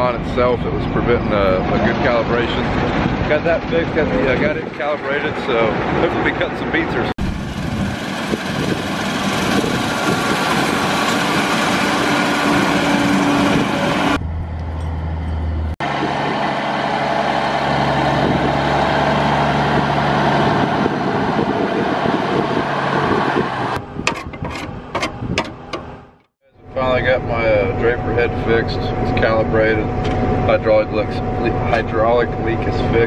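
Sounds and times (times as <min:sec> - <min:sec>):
combine harvester running: 0:07.2 - 0:26.2.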